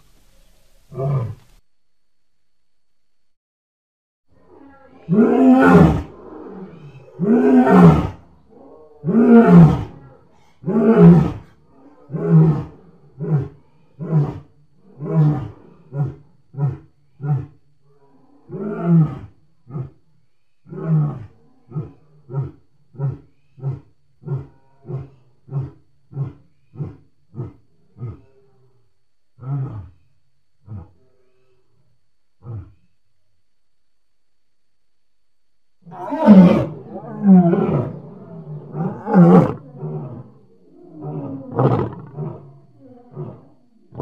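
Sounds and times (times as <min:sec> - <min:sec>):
lion roaring: 0:04.4 - 0:20.0, 0:29.4 - 0:31.0, 0:32.4 - 0:32.9, 0:35.8 - 0:44.0.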